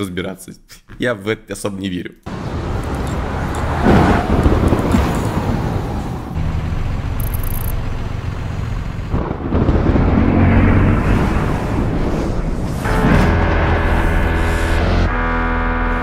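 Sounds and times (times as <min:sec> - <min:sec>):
heavy low rumble: 0:02.3 - 0:15.1
loud crash: 0:09.2 - 0:14.4.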